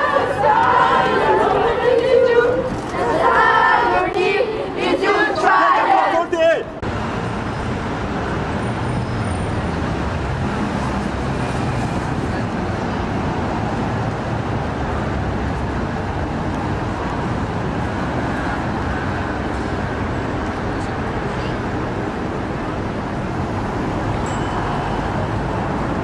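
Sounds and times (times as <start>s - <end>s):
city street traffic: 0.0s - 26.0s.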